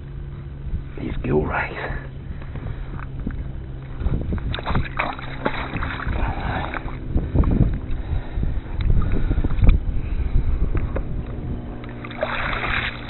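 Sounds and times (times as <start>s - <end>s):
water slopping: 2.1s - 9.8s, 10.8s - 13.0s.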